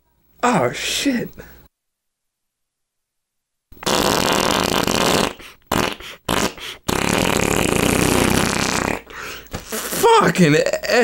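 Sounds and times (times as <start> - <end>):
fart sounds: 3.8 - 10.3.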